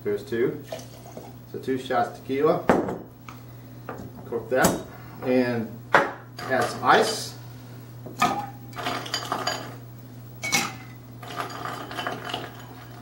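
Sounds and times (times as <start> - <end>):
ice cubes clinking in metal shaker: 10.5 - 13.0.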